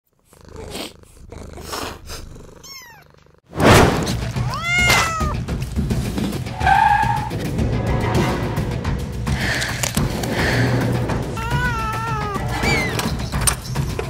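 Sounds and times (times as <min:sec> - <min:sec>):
kitten meowing: 0:02.6 - 0:03.1, 0:04.4 - 0:05.4, 0:11.4 - 0:13.1
sudden rush of noise: 0:07.3 - 0:11.5.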